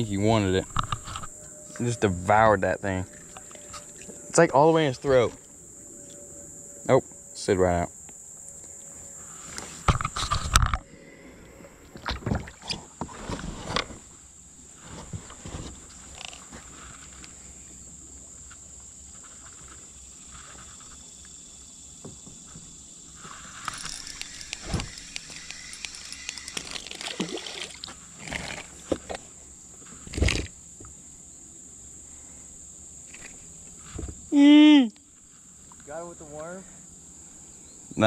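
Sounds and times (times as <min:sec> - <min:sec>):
insect buzz: 0:00.0 - 0:38.0
rattling and splashing: 0:23.6 - 0:29.2.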